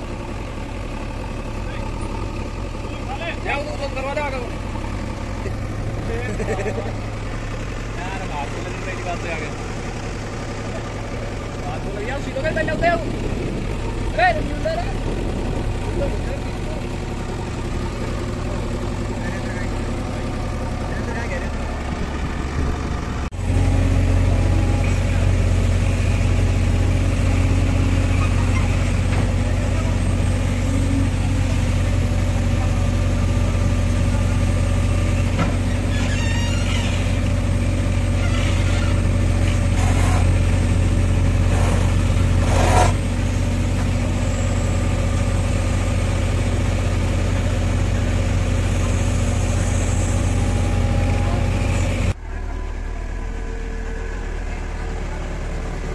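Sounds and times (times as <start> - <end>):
diesel engine running under load: 0.0 - 55.9
sharp digging noises: 41.4 - 43.1.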